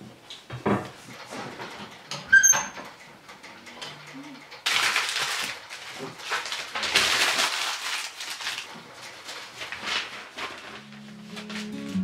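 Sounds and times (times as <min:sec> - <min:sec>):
paper crumpling: 0:04.7 - 0:12.0.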